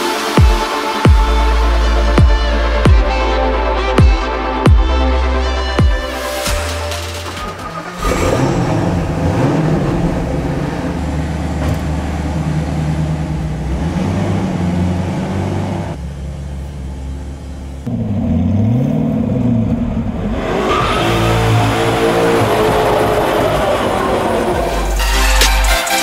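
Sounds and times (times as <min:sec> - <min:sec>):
car engine idling unevenly: 0:07.2 - 0:20.2.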